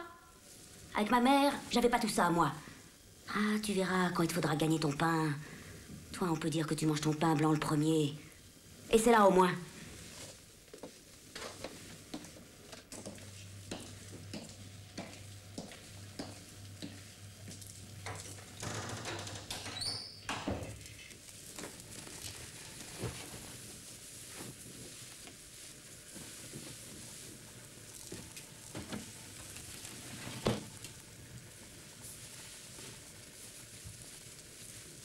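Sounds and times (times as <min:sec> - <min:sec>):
person moving about room: 0:07.6 - 0:35.0
clothing rustling: 0:21.2 - 0:35.0.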